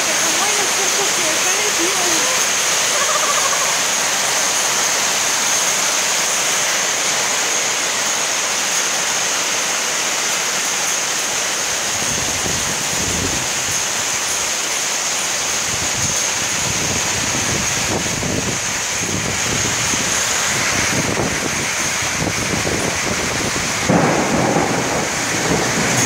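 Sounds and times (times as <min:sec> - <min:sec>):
torrential rain on pavement: 0:00.0 - 0:26.0
low thunder rumbling: 0:20.6 - 0:26.0.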